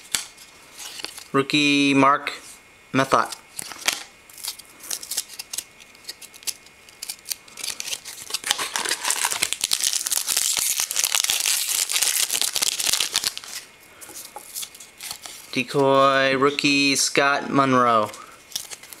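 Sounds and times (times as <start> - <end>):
foil wrapper tearing and crinkling: 3.6 - 13.7, 18.5 - 19.0.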